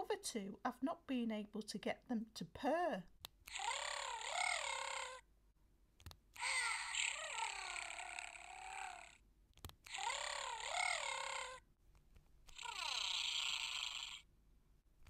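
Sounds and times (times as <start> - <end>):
electronic toy purring: 3.5 - 5.2, 6.4 - 9.2, 9.8 - 11.7, 12.4 - 14.3.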